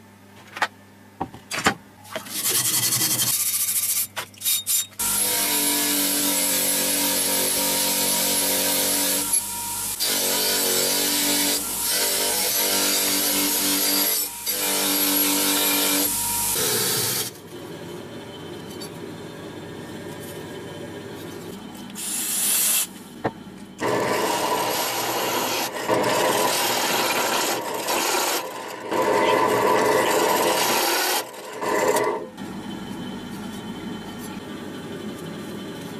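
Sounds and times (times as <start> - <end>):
grinder motor hum: 5.0 - 19.8, 23.3 - 32.7
drill press boring into steel: 23.8 - 32.2.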